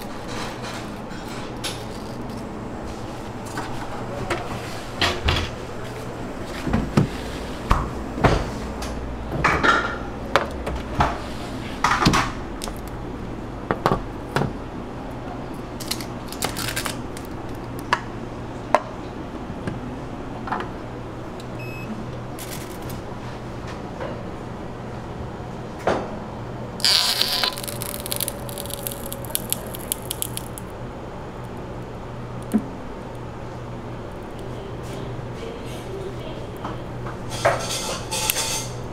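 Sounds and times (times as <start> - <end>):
steady low hum: 0.0 - 16.3
short beep: 21.6 - 21.9
dishes and utensils clinking: 37.3 - 38.8.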